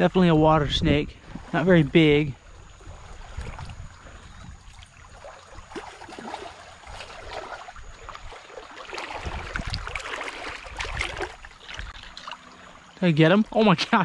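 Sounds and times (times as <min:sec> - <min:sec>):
water splashing around wading boots: 0:02.8 - 0:12.9.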